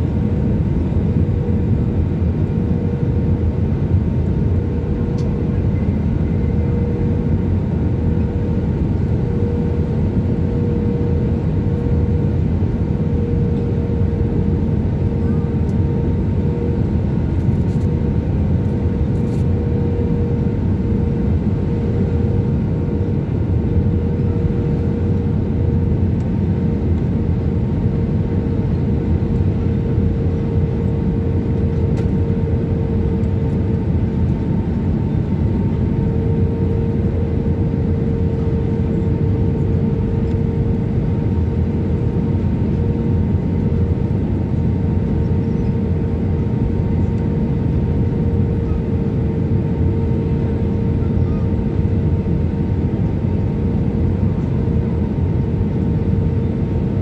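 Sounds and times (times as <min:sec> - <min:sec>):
aircraft engines and airflow roar: 0:00.0 - 0:57.0
constant cabin hum: 0:00.0 - 0:57.0.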